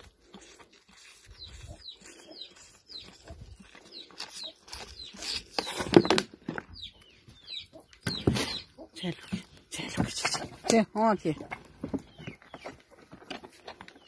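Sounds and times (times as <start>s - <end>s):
calf sucking milk bottle: 0.0s - 5.5s
small birds chirping: 0.0s - 14.0s.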